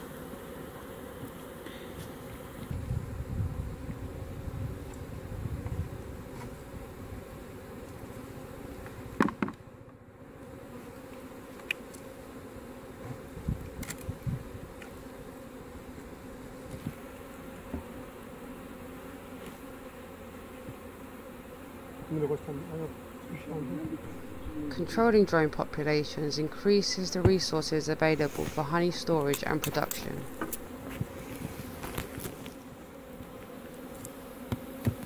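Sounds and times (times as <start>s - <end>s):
bees buzzing: 0.0s - 35.0s
light knocks on wooden hive: 9.2s - 9.6s, 17.6s - 18.1s, 34.4s - 35.0s.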